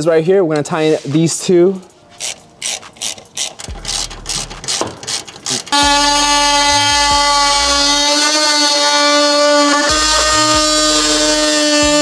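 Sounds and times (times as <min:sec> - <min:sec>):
ratchet wrench clicking: 0:02.2 - 0:05.8
oscillating multi-tool buzzing: 0:02.2 - 0:12.0.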